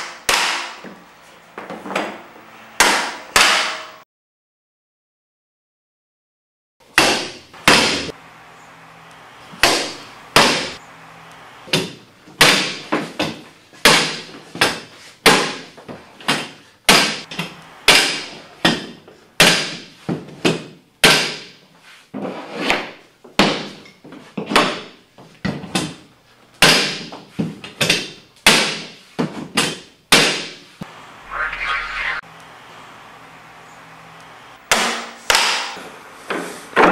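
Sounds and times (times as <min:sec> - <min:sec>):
mallet knocking floor nailer: 0:07.0 - 0:08.1, 0:09.6 - 0:10.8, 0:11.7 - 0:15.7, 0:16.3 - 0:21.5, 0:26.6 - 0:27.1, 0:34.7 - 0:35.8.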